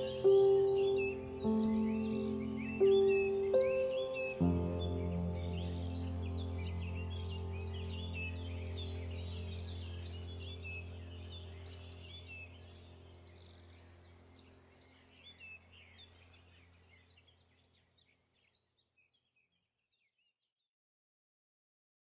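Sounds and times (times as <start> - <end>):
low steady drone: 0.0 - 16.7
birds chirping: 0.0 - 20.2.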